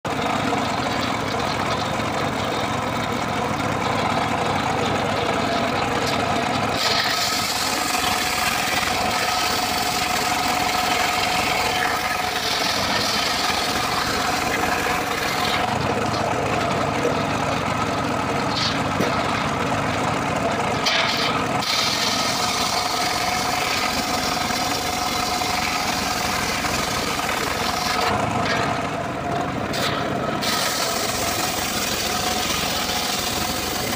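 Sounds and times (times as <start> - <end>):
sawmill blade humming: 0.1 - 33.9
saw blade ripping through log: 6.8 - 15.7, 20.8 - 28.2, 29.7 - 33.8.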